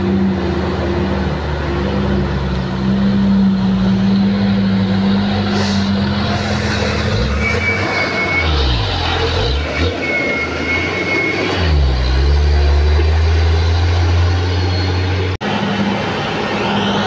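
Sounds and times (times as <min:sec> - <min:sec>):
truck engine running hard: 0:00.0 - 0:17.0.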